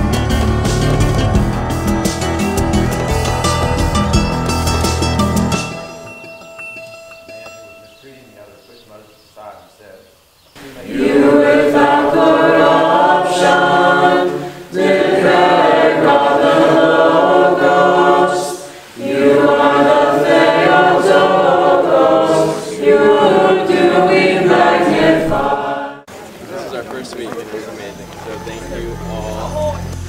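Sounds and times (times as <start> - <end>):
congregation singing a hymn: 10.6 - 26.7.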